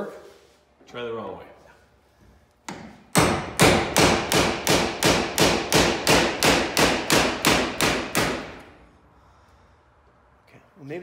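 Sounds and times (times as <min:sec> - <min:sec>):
hammer striking metal: 0:02.7 - 0:08.7.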